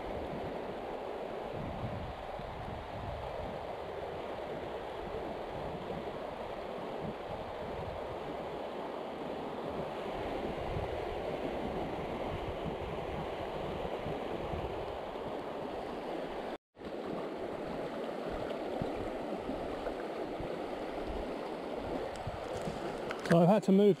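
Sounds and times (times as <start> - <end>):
river water rushing over stones: 15.0 - 23.8.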